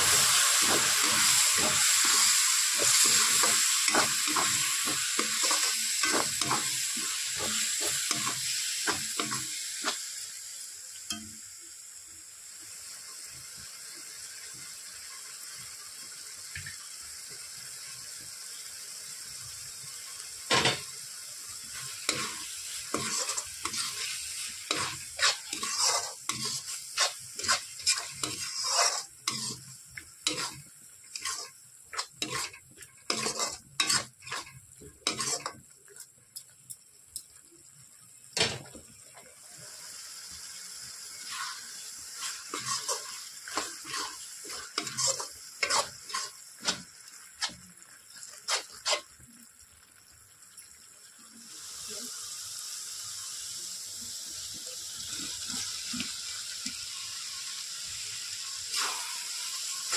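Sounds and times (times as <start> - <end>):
metal spoon stirring and scraping: 0.0 - 10.0, 21.8 - 35.6, 41.3 - 47.6, 48.4 - 49.1
curry sizzling in metal pan: 0.0 - 59.9.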